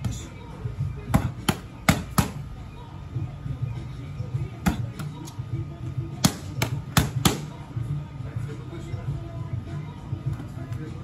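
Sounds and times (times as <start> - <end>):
boxing gloves hitting mitts: 1.0 - 2.5, 4.6 - 5.3, 6.1 - 7.6.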